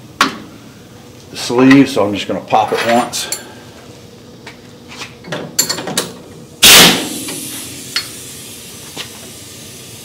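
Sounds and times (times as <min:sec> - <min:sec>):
impact wrench burst: 0:06.6 - 0:08.2
air hiss: 0:06.6 - 0:10.0.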